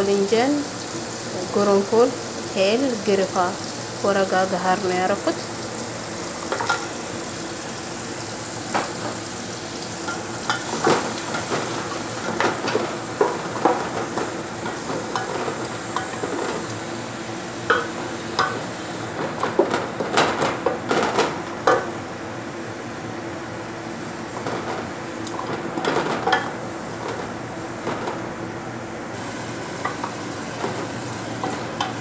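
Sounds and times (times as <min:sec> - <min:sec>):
onions sizzling in butter: 0:00.0 - 0:20.8, 0:29.1 - 0:32.0.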